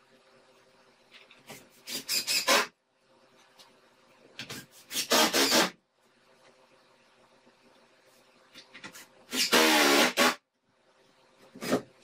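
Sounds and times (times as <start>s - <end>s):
drill driving screws into wood: 4.9s - 5.8s, 9.3s - 10.4s.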